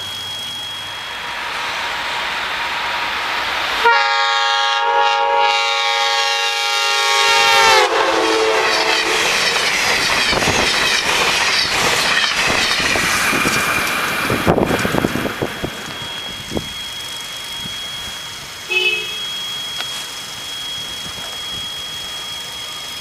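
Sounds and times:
train air horn: 3.8 - 9.3, 18.7 - 19.4
train wheels clacking on rails: 7.4 - 18.3.

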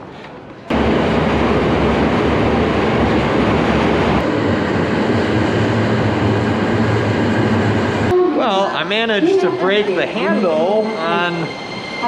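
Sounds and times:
train rumbling and rattling on rails: 0.0 - 12.0.

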